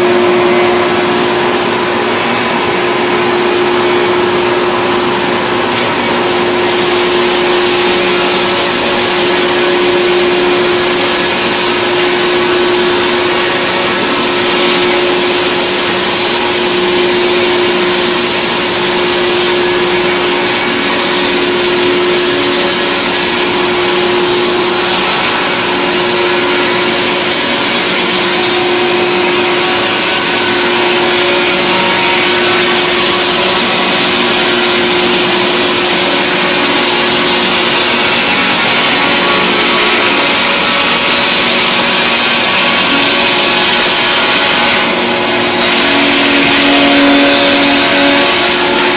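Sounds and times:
log-milling machine running: 0.0s - 48.9s.

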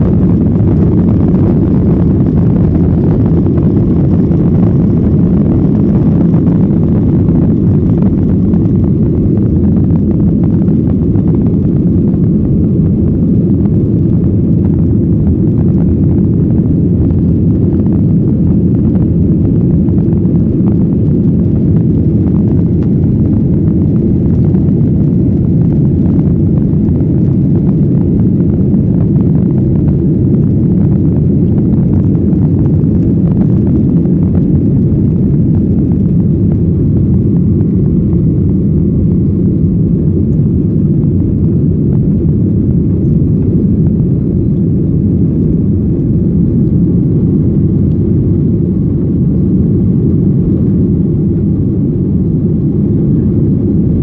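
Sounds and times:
jet engines rumbling in cabin: 0.0s - 54.0s.

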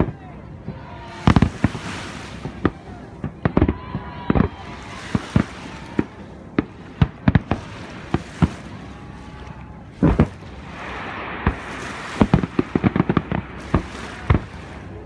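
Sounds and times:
fireworks bangs: 0.0s - 8.8s, 9.9s - 15.0s
rapid firework pops: 10.0s - 10.4s, 11.4s - 14.4s
heavy firework boom: 10.0s - 14.6s.

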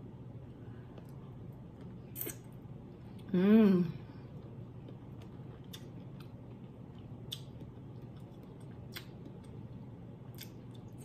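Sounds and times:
low steady hum: 0.0s - 11.0s
chewing clicks and smacks: 4.8s - 9.6s, 10.3s - 11.0s.

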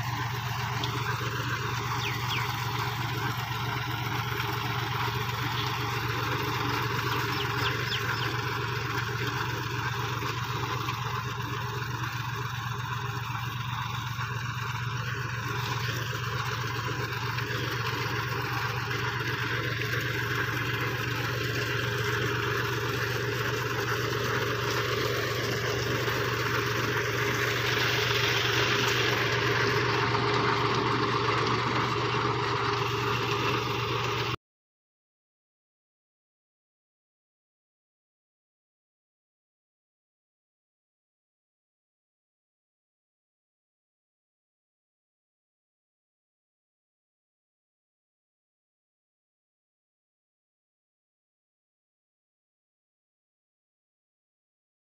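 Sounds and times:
tractor engine running: 0.0s - 34.4s
potato digger lifting soil: 15.3s - 34.3s.

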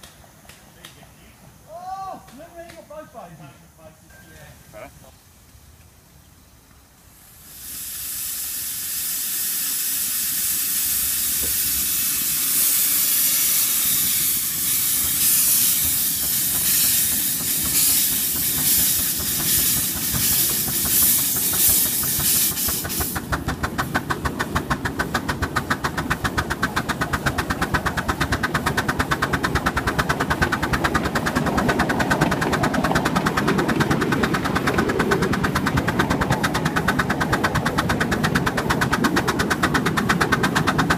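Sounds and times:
steam locomotive exhaust beats: 6.6s - 40.9s
steam hissing: 7.0s - 40.9s.

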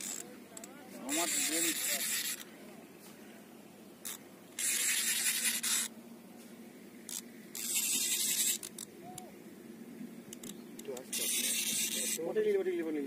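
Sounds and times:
fishing reel buzzing: 0.0s - 2.5s, 4.0s - 6.0s, 7.1s - 9.2s, 10.3s - 12.4s.

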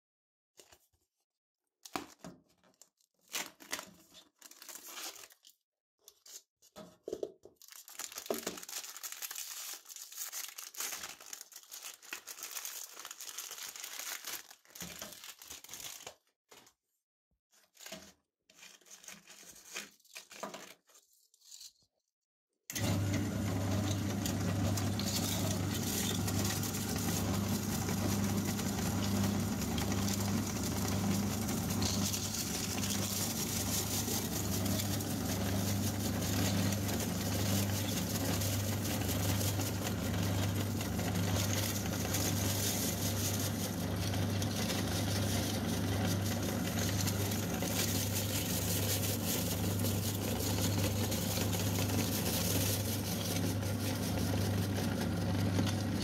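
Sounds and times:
packaging crinkling and tearing: 1.8s - 6.4s, 7.4s - 16.8s, 17.6s - 21.7s, 24.2s - 55.8s
meat grinder motor humming: 22.7s - 56.0s.

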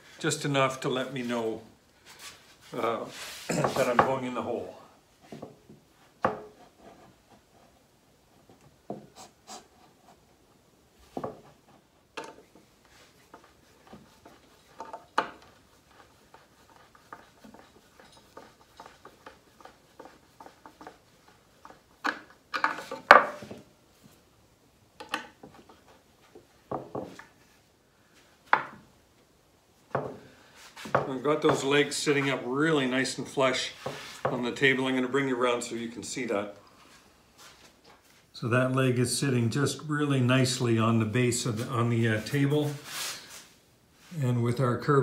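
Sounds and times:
wooden table legs knocking: 5.4s - 6.6s, 21.6s - 23.6s, 26.7s - 27.3s, 28.5s - 28.8s.

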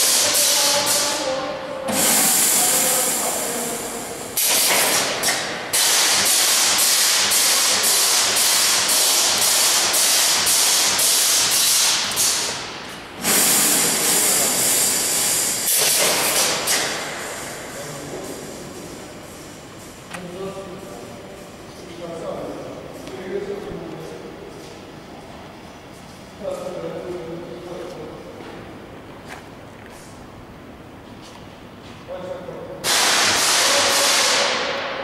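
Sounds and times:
welding machine hissing: 1.9s - 19.7s, 32.8s - 34.6s.

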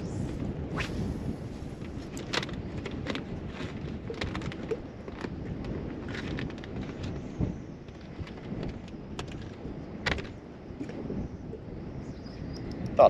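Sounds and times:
water noise from a boat: 0.0s - 13.0s
wind rumble: 0.0s - 13.0s.

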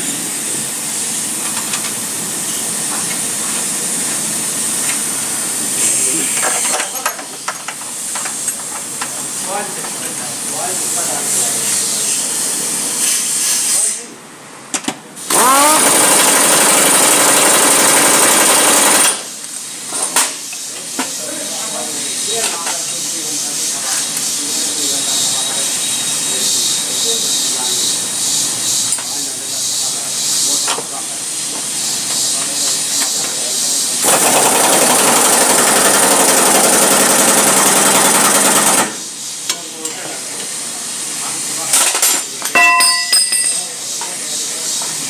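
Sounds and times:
pneumatic impact wrench: 0.0s - 9.6s, 10.4s - 14.1s, 14.8s - 42.6s
impact wrench rattling: 15.3s - 19.2s.

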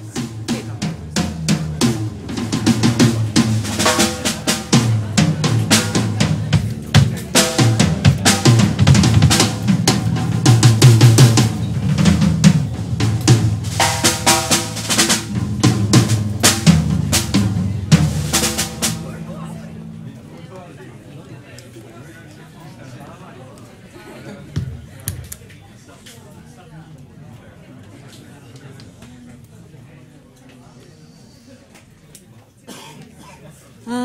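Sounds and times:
rock band playing live: 0.2s - 20.6s
snare and bass drum hits: 0.6s - 19.9s.

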